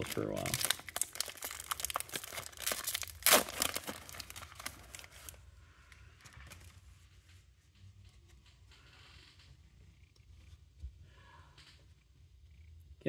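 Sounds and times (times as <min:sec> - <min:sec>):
foil wrapper crinkling and tearing: 0:00.0 - 0:05.4.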